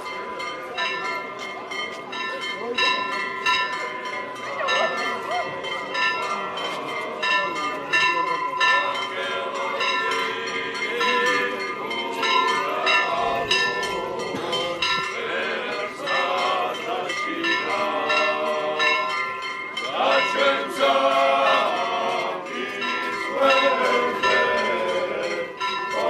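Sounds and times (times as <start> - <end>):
church bells ringing: 0.0 - 26.0
people chanting and talking: 0.0 - 26.0.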